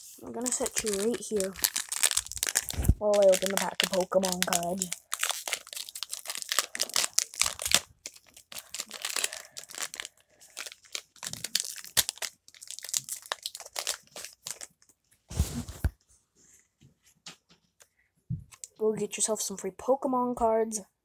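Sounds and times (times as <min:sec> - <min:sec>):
foil pack tearing and crinkling: 0:00.0 - 0:14.8.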